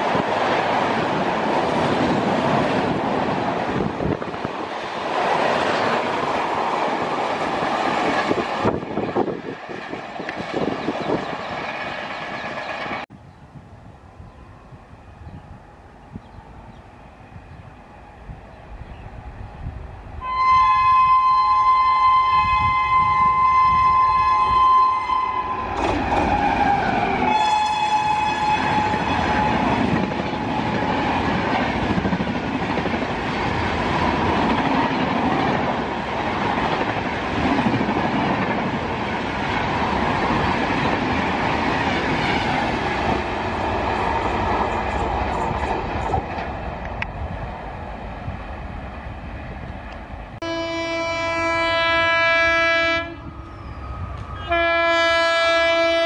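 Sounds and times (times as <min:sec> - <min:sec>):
train coaches clattering on rails: 0:00.0 - 0:13.1, 0:25.7 - 0:47.3
locomotive horn: 0:20.2 - 0:30.5, 0:50.4 - 0:56.0
low-pitched train horn: 0:20.2 - 0:31.2, 0:50.4 - 0:56.0.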